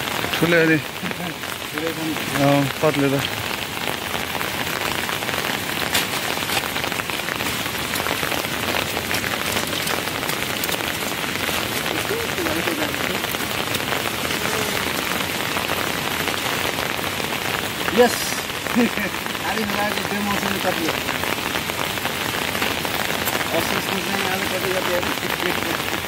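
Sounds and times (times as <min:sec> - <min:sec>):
steady rain falling: 0:00.0 - 0:26.0
faint voice: 0:14.2 - 0:15.0.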